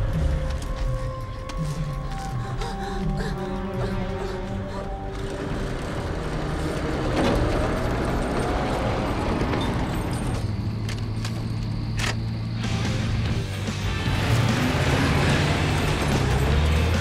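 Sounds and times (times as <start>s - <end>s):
truck engine running: 3.6s - 17.0s.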